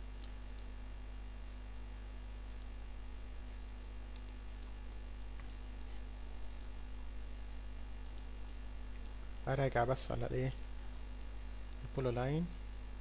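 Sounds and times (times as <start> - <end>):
tiny ticks: 0.0 - 0.8, 2.5 - 2.8, 4.1 - 5.6, 8.0 - 9.2
electrical mains hum: 0.0 - 13.0.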